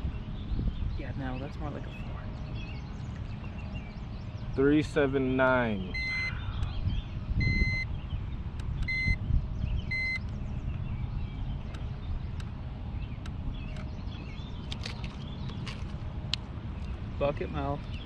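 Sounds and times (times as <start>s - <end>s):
wind rumbling on microphone: 0.0s - 18.0s
short high beeps: 5.9s - 6.3s, 7.4s - 7.9s, 8.9s - 9.2s.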